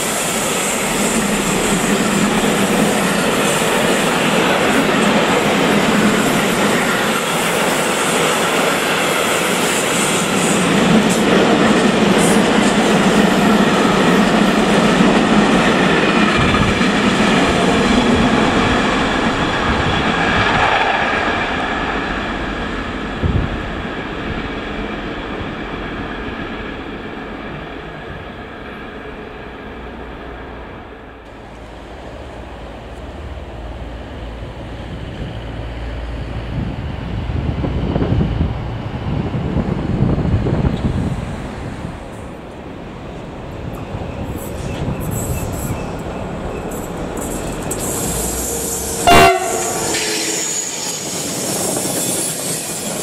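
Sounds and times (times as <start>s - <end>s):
train wheels clattering on rails: 0.0s - 21.9s.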